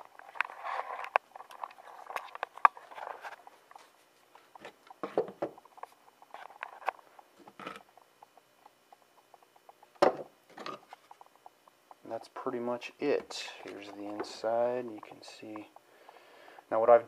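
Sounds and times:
knocks on wooden workbench: 10.0s - 10.3s.

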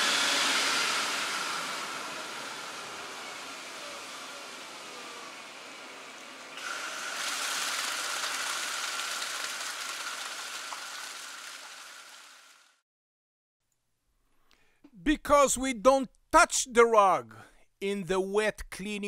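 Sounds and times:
water jet spraying on a rug: 6.6s - 12.5s.

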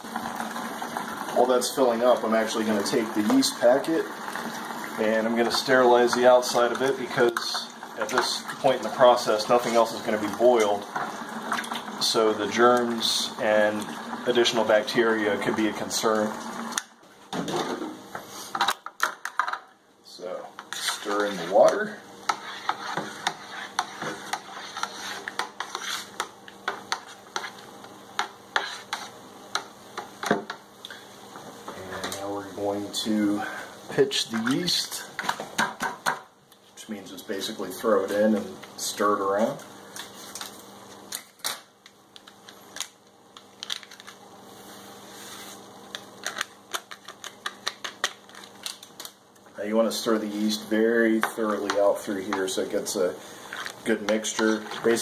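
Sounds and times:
liquid swishing in a bucket: 20.6s - 26.2s
foil packet crinkling: 43.5s - 44.2s, 46.1s - 49.2s.

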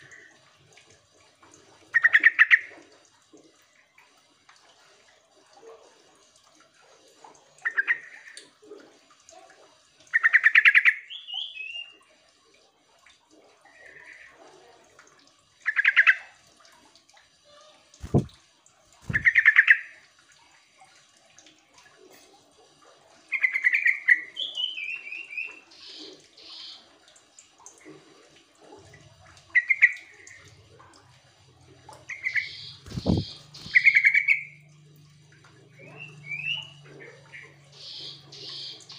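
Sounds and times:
bulbul bubbly chattering calls: 1.9s - 2.7s, 10.1s - 12.0s, 15.6s - 16.4s, 18.0s - 18.3s, 19.0s - 20.0s, 23.3s - 26.9s, 29.5s - 30.5s, 32.0s - 34.7s, 35.7s - 38.9s.

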